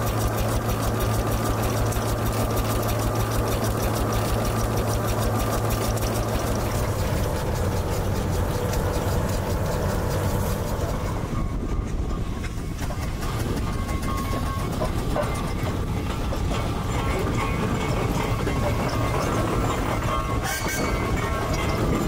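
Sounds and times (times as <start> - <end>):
engines humming with ticking: 0.0 - 22.0.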